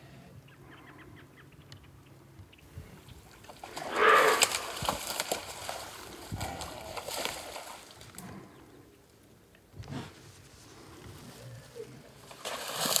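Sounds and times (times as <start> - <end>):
splashing in shallow water: 3.3 - 8.2, 12.2 - 13.0.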